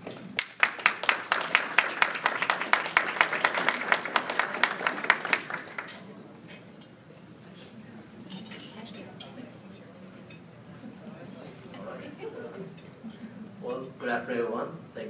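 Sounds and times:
small audience applauding: 0.0 - 6.1.

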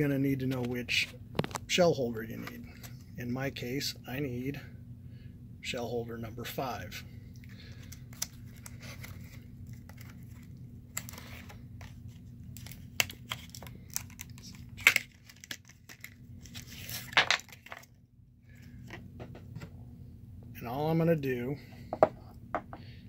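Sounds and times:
plastic package crinkling: 7.7 - 18.0.

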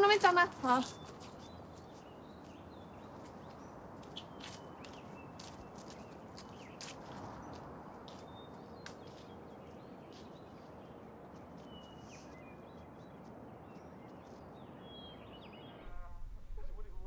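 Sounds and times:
outdoor hush: 0.0 - 17.0
bird chirps: 0.6 - 10.9
footsteps on fallen leaves: 0.7 - 10.8.

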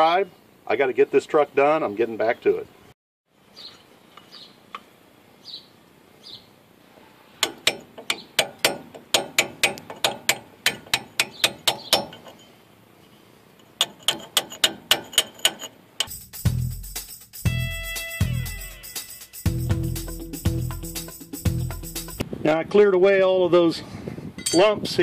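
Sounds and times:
hammer striking chisel on metal: 7.4 - 12.4, 13.7 - 16.2, 24.4 - 24.8.

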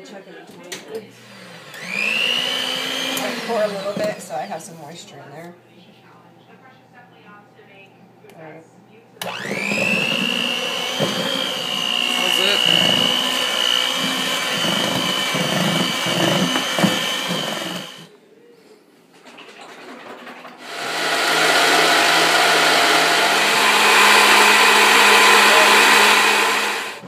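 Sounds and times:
electric hand mixer running: 1.1 - 4.5, 9.2 - 18.1, 20.6 - 27.0
stand mixer whipping: 1.2 - 4.3, 9.2 - 18.1, 20.6 - 27.0.

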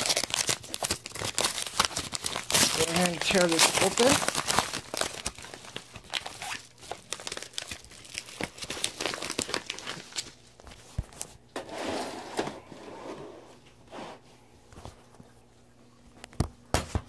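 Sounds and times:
paper packaging tearing and crumpling: 0.0 - 11.3.

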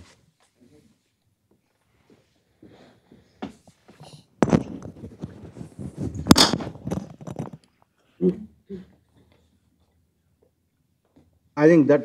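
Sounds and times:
microphone handling noise: 4.4 - 7.6.

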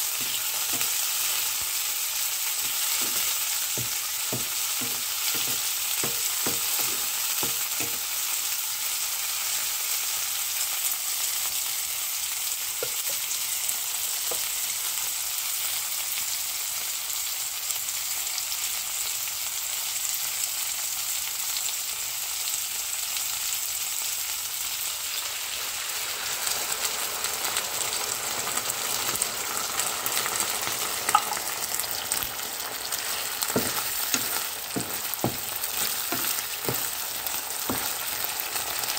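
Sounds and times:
vegetables sizzling in oil: 0.0 - 38.9
wooden spatula knocking pan: 2.6 - 8.1, 33.0 - 38.1.

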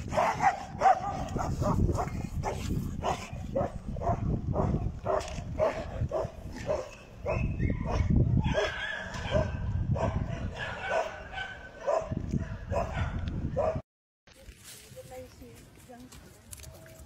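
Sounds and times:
dog barking: 0.1 - 13.8.

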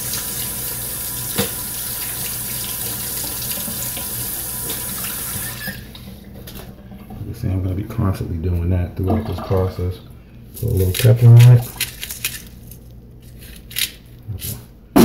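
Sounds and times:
tap water running: 0.0 - 7.7, 9.0 - 9.9.

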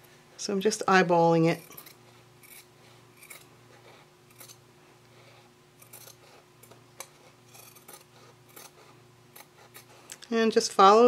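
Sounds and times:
scissors snipping fabric: 4.3 - 4.6, 5.8 - 9.9.

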